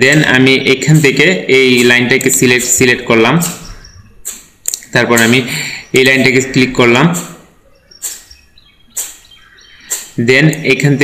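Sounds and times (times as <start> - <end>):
faint high chirps: 3.6 - 4.4, 5.5 - 10.2
short sharp clicks: 8.0 - 8.4, 9.0 - 9.2, 9.9 - 10.6.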